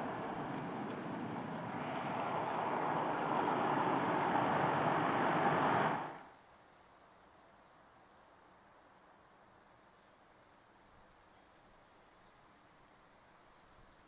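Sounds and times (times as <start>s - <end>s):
car approaching on asphalt: 0.0s - 6.3s
faint hiss: 0.0s - 14.0s.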